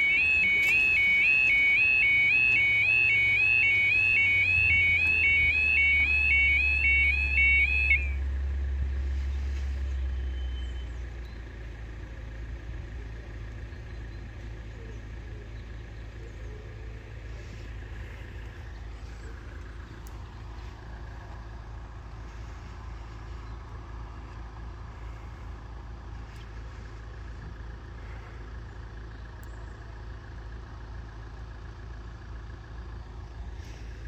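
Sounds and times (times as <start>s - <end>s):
level crossing alarm warbling: 0.0s - 8.2s
steady low rumble: 0.0s - 34.0s.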